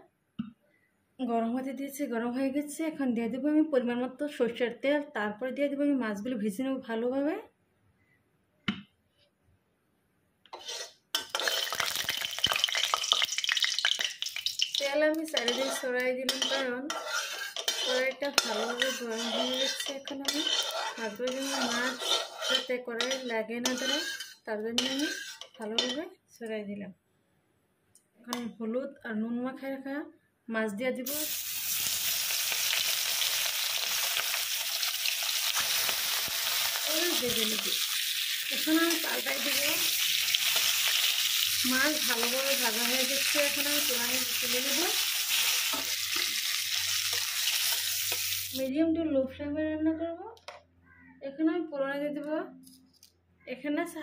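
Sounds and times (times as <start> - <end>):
metal spoon scraping a pan: 10.5 - 13.3, 14.5 - 26.0, 32.6 - 48.6
oil sizzling in a pan: 10.6 - 25.5, 31.1 - 48.7.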